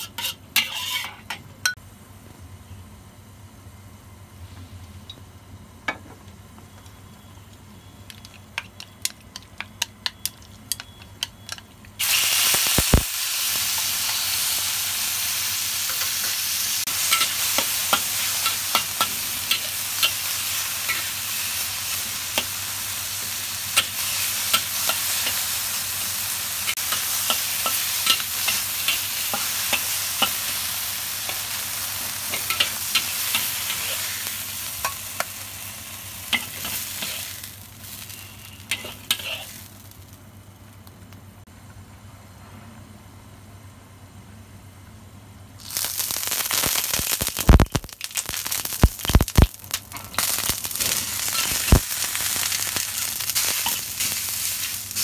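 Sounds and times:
chicken sizzling in a hot wok: 0.0 - 1.2, 12.0 - 40.3, 45.6 - 55.0
spatula scraping a wok: 0.0 - 1.4, 15.9 - 22.5, 32.2 - 35.0, 36.3 - 39.7.

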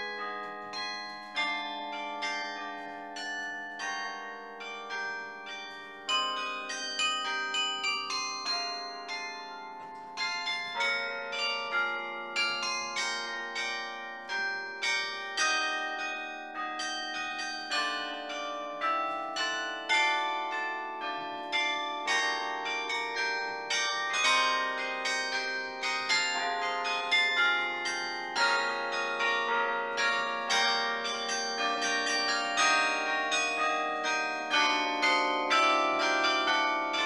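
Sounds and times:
carillon bells playing tune: 0.0 - 37.0.

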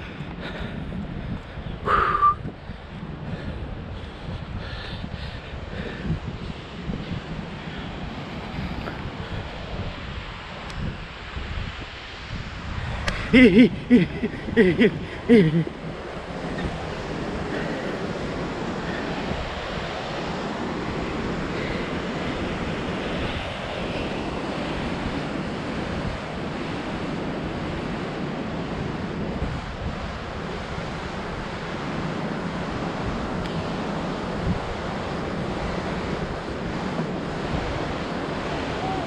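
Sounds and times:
wind on microphone: 0.0 - 39.0
waterfall and river rushing: 7.6 - 25.1, 33.7 - 39.0.

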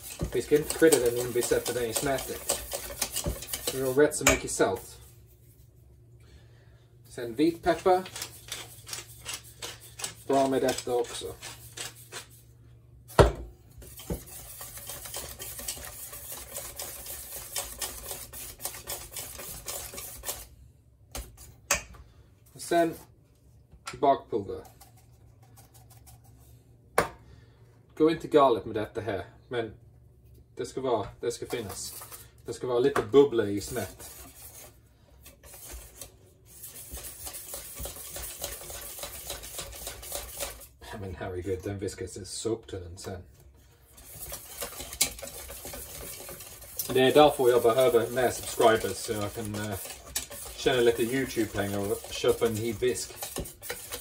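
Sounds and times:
whisk beating batter in metal bowl: 0.0 - 5.1, 7.4 - 12.4, 13.8 - 20.5, 31.4 - 32.3, 33.1 - 40.8, 43.8 - 54.0.

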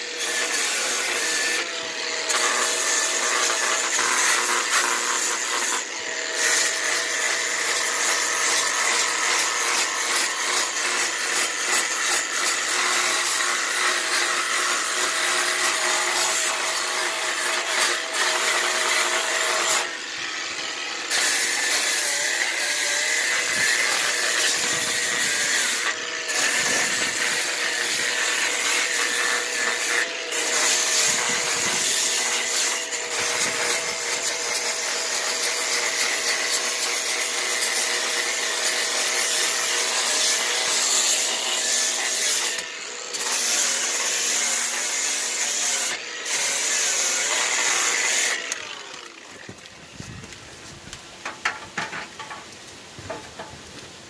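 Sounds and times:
power tool motor whine: 0.0 - 50.9.

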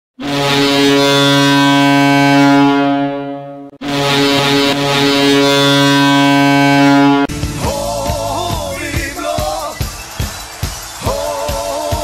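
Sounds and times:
goal horn blasts: 0.2 - 7.4.

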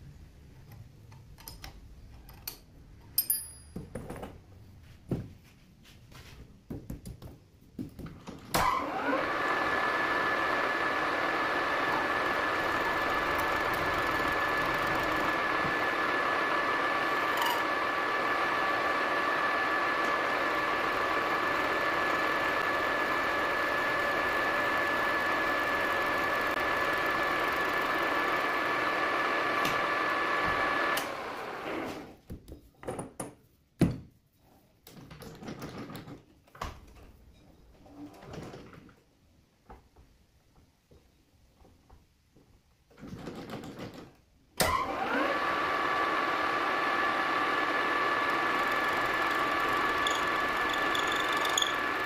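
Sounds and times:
metal lathe whining: 8.8 - 31.9, 44.9 - 52.0.

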